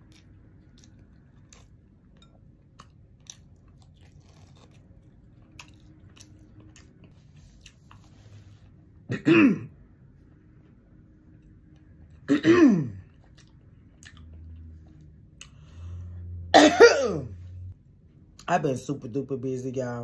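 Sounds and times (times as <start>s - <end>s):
soft chewing: 0.0s - 9.0s, 12.9s - 16.1s.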